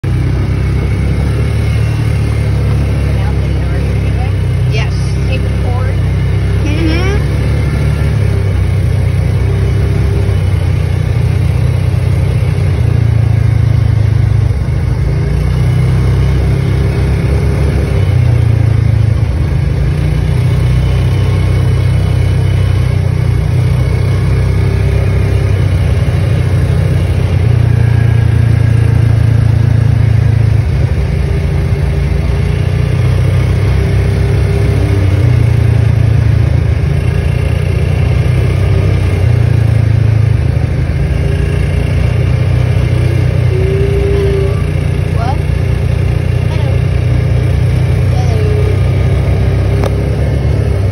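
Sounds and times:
vehicle engine running from cab: 0:00.0 - 0:50.9.

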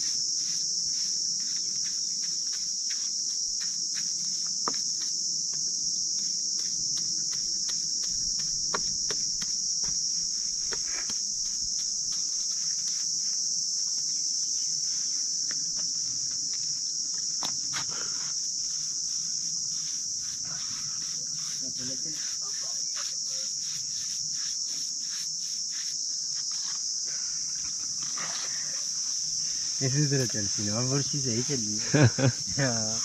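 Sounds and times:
paintbrush scratching on wood: 0:00.0 - 0:15.8, 0:17.5 - 0:26.9, 0:27.6 - 0:33.0
insect chorus droning: 0:00.0 - 0:33.0.

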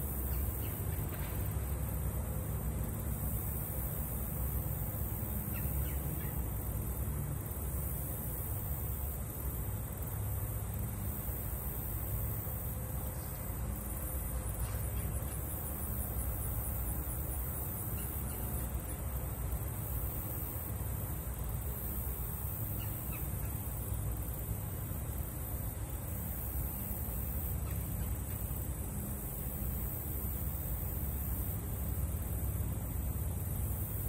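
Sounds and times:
insect chirping: 0:00.0 - 0:34.0.

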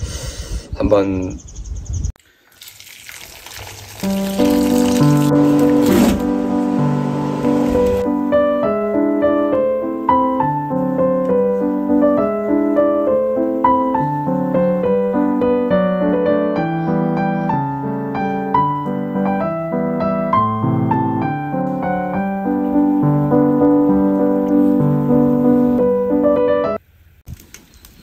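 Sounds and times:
piano music: 0:04.0 - 0:26.8.

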